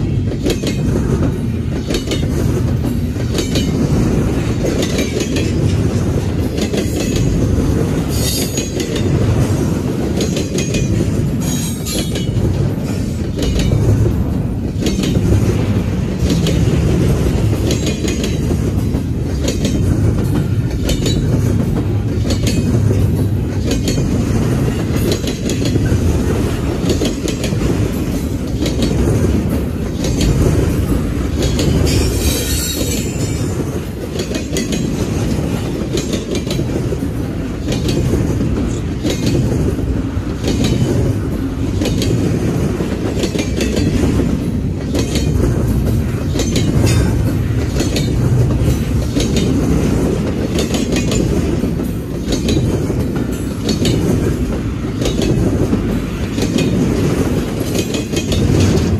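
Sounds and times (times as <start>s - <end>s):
train wheels rumbling: 0.0s - 58.9s
wheels clacking over rail joints: 0.0s - 58.9s
high-pitched wheel squeal: 31.9s - 33.2s.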